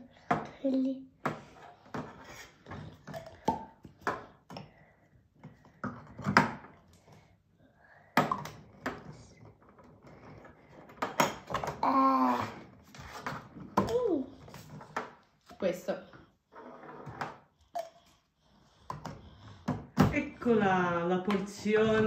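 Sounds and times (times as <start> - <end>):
drink containers knocking and clicking: 0.1 - 4.8, 5.4 - 7.0, 8.1 - 11.9, 17.0 - 20.4.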